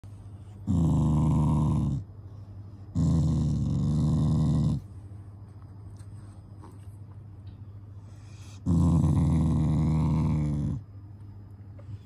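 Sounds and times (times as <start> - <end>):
dog growling: 0.4 - 2.1, 2.9 - 4.9, 8.4 - 10.9.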